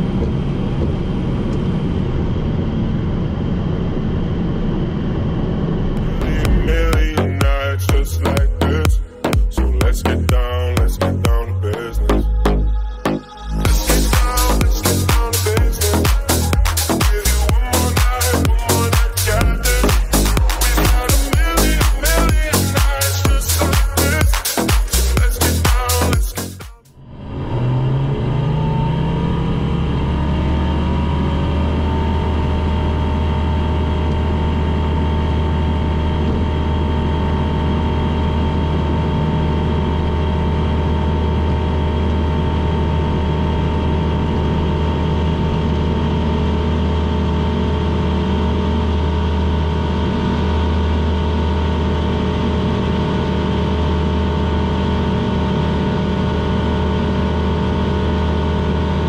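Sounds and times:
light aircraft engine droning: 0.0 - 6.8.

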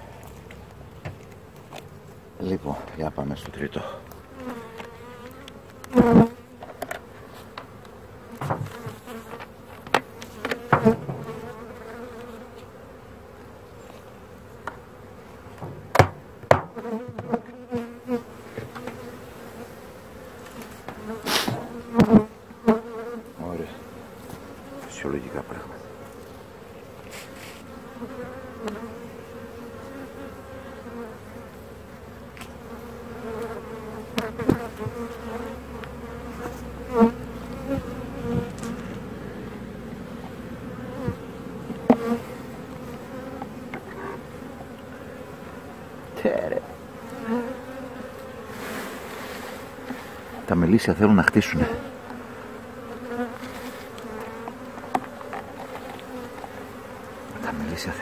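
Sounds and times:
honeybees buzzing: 0.0 - 58.0
wooden hive frames knocking: 8.4 - 11.7, 15.5 - 18.0, 34.1 - 35.2, 37.6 - 44.8, 54.0 - 56.7.

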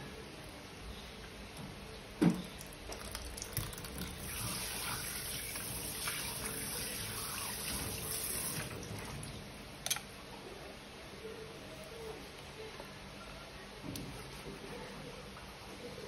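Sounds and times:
tap water running into sink: 2.9 - 9.2.

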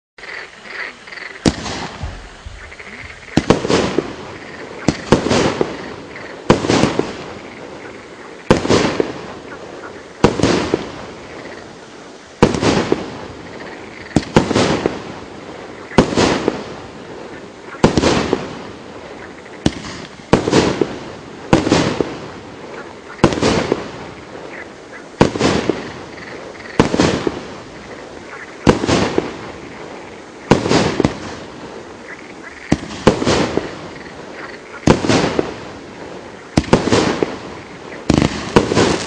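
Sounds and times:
firework launch thumps: 1.4 - 5.9, 19.6 - 22.2, 30.5 - 31.5, 36.6 - 37.4, 38.1 - 39.0.

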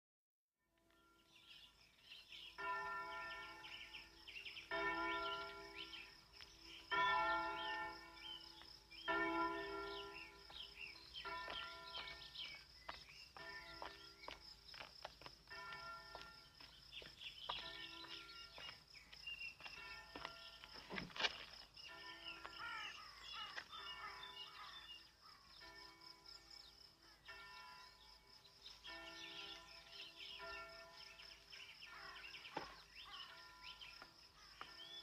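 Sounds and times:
church bell tolling: 2.4 - 12.6, 13.4 - 14.3, 15.5 - 16.6, 17.6 - 18.6, 19.8 - 21.0, 21.9 - 24.6, 25.6 - 28.0, 28.7 - 34.0.

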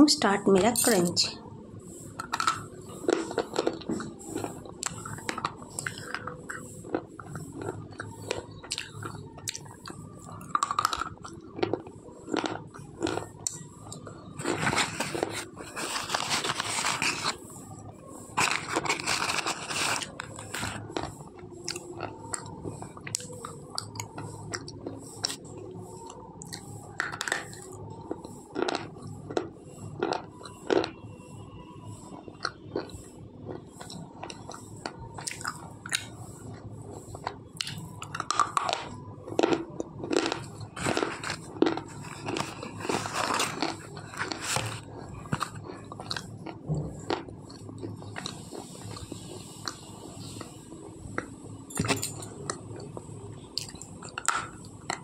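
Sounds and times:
slate pencil crunching: 14.4 - 17.4, 18.4 - 21.1.

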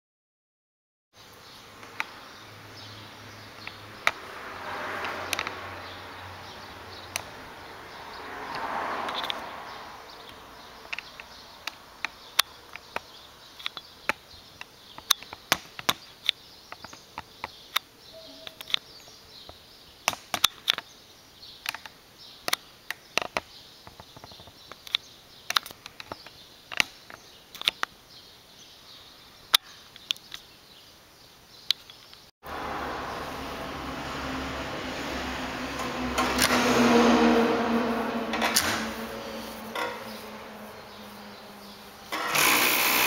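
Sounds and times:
sharp clicks and knocks: 3.6 - 4.2, 5.0 - 5.6, 35.7 - 36.8, 38.3 - 39.0, 39.6 - 40.2
sewing machine motor running: 42.1 - 43.0.

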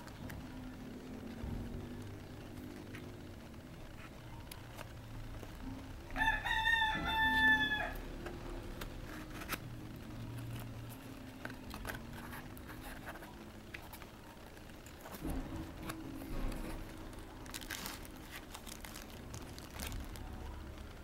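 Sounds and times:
rooster crowing: 6.1 - 8.2.

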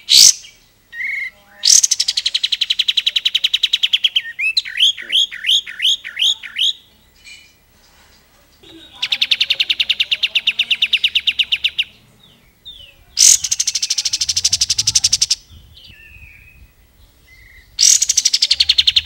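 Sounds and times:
bird rattling trill: 12.6 - 16.5, 17.5 - 19.0.

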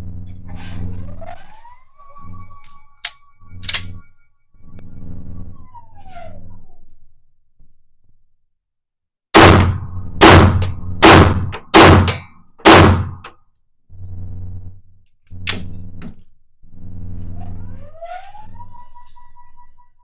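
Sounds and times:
electric target carrier humming: 0.0 - 6.9, 9.4 - 13.3, 13.9 - 19.9
handgun shots: 9.4 - 13.3.

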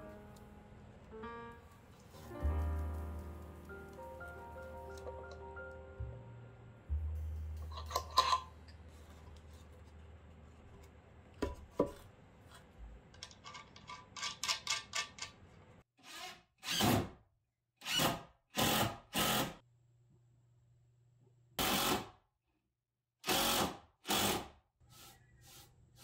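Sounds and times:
cordless drill into wood: 23.2 - 24.5.

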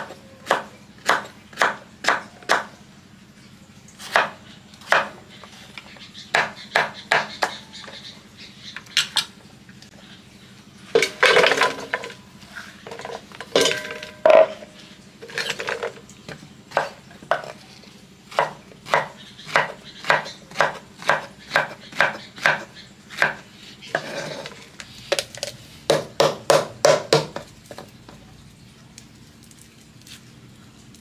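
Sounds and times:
knife chopping on wooden board: 0.0 - 2.7, 4.0 - 5.2, 6.3 - 7.6, 18.3 - 23.4, 25.9 - 27.8.

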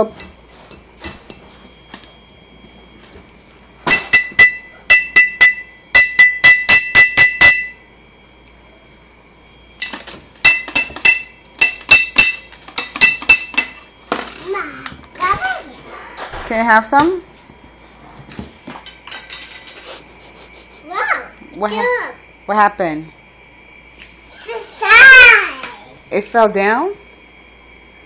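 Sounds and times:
glass bottle clinking: 0.2 - 1.5, 3.9 - 7.8, 9.8 - 13.9.

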